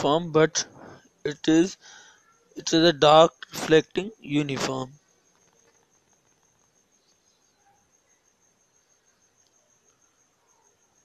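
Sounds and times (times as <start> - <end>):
faint high-pitched tone: 0.0 - 1.7, 2.3 - 5.0.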